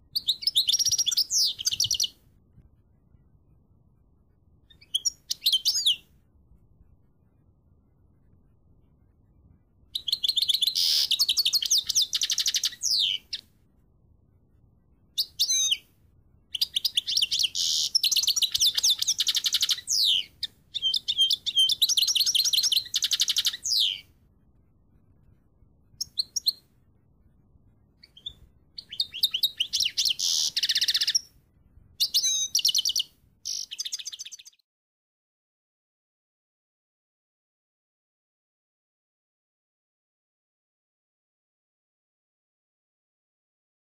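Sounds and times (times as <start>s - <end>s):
finch twittering trills: 0.2s - 2.2s, 16.6s - 24.0s, 28.0s - 31.3s.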